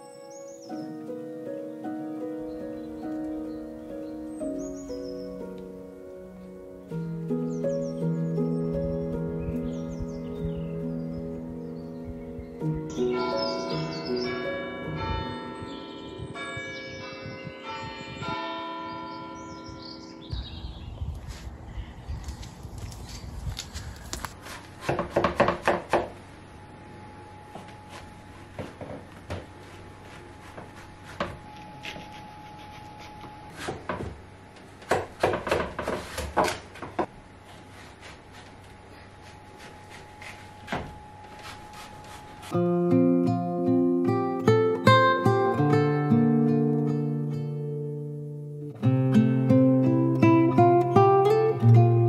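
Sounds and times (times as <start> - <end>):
church bells ringing: 7.8 - 20.9
knife chopping on wooden board: 24.4 - 26.2.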